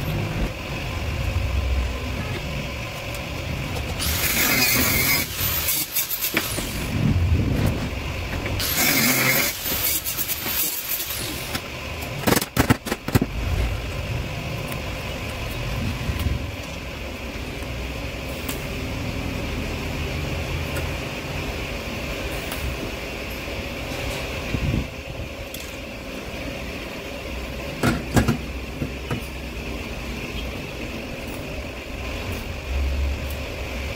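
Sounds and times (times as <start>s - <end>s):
steady machine hum: 0.0s - 33.9s
angle grinder on steel tube: 3.9s - 7.0s, 8.6s - 11.6s.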